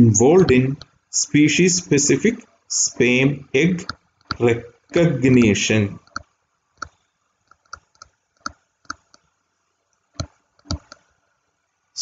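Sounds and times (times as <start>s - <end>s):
pen tapping on screen: 10.2s - 11.1s.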